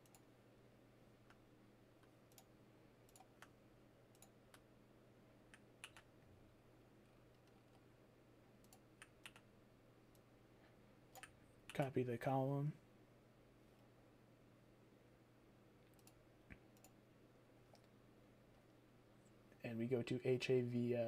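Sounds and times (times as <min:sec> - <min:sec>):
faint low hum: 0:00.0 - 0:21.0
computer keyboard clicks: 0:05.8 - 0:06.1, 0:08.6 - 0:09.4.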